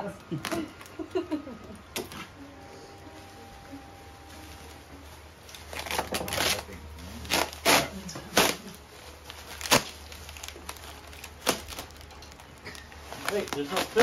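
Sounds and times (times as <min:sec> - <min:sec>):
plastic sheet rustling and crinkling: 0:04.2 - 0:14.0.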